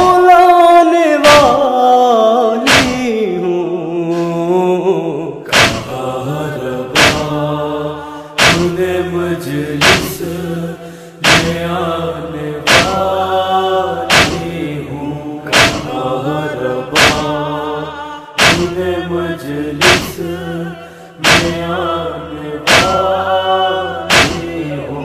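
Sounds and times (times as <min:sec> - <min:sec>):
voices chanting a lament: 0:00.0 - 0:25.0
sharp beat striking: 0:02.7 - 0:03.0, 0:05.5 - 0:06.0, 0:07.0 - 0:07.4, 0:08.4 - 0:08.8, 0:09.8 - 0:10.3, 0:11.2 - 0:11.7, 0:12.7 - 0:13.1, 0:14.1 - 0:14.6, 0:15.5 - 0:16.1, 0:16.9 - 0:17.4, 0:18.4 - 0:18.8, 0:19.8 - 0:20.2, 0:21.2 - 0:21.7, 0:22.7 - 0:23.0, 0:24.1 - 0:24.5.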